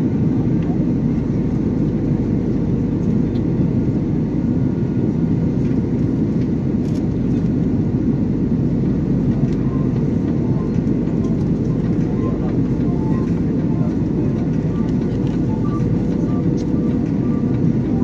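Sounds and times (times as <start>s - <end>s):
airliner cabin engine rumble: 0.0s - 18.0s
faint steady tones: 9.2s - 18.0s.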